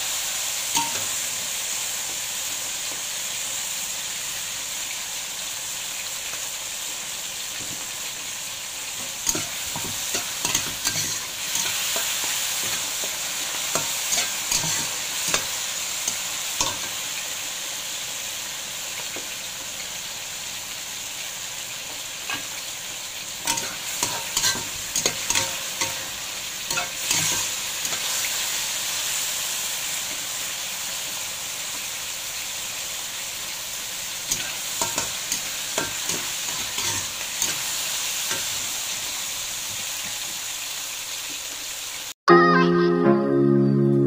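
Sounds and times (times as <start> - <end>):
food sizzling in a wok: 0.0 - 42.2
metal spatula scraping a wok: 9.3 - 13.0, 13.7 - 15.5, 23.4 - 26.1, 26.7 - 28.2, 34.3 - 38.6.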